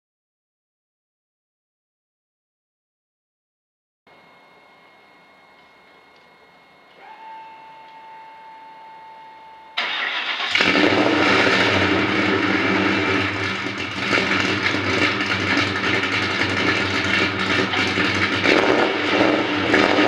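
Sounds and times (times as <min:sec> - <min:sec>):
faint steady whine: 0:04.1 - 0:10.6
car engine idling: 0:09.8 - 0:20.0.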